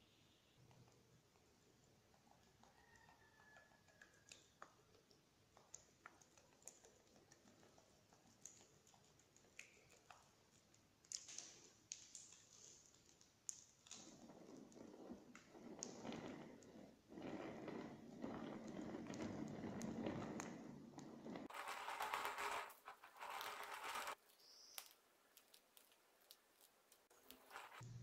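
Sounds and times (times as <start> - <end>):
small clicks and ticks: 0.6 - 16.6, 18.2 - 27.9
soft rustle: 21.4 - 27.8.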